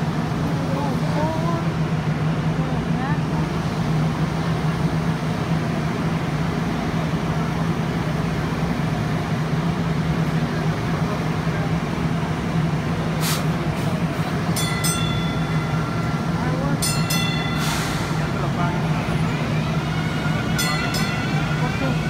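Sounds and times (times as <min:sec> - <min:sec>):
light rail car rolling past: 0:00.0 - 0:22.0
high multi-tone ringing: 0:14.6 - 0:22.0.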